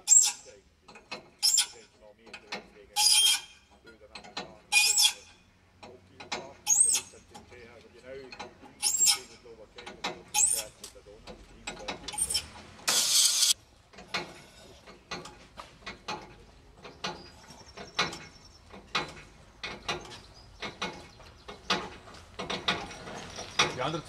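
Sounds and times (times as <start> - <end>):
short high squeaks: 0.0 - 0.6, 1.3 - 1.9, 2.9 - 3.8, 4.7 - 5.5, 6.7 - 7.2, 8.8 - 9.4, 10.3 - 10.8, 12.1 - 13.6.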